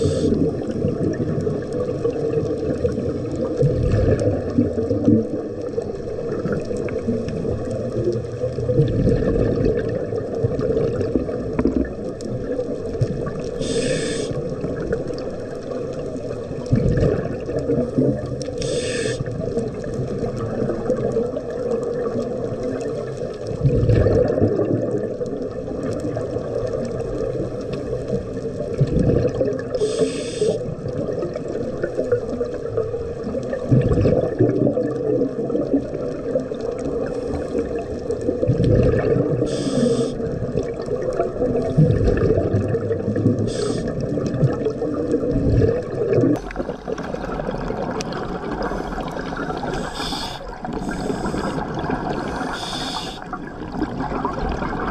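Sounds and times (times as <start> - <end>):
regulator hissing inhalations: 0.0 - 0.4, 13.6 - 14.4, 18.6 - 19.3, 29.8 - 30.6, 39.5 - 40.2, 43.5 - 43.9, 48.7 - 53.3
gurgling bubble exhalations: 0.0 - 54.9
steady underwater wash: 0.0 - 54.9.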